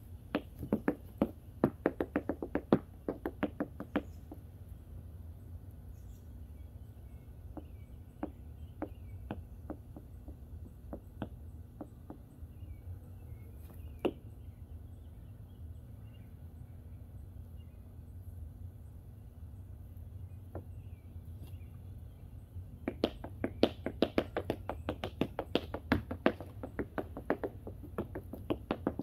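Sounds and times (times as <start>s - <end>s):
faint birds chirping: 0.0s - 29.0s
tap shoes clicking on wood: 0.3s - 4.4s, 7.5s - 12.3s, 22.8s - 29.0s.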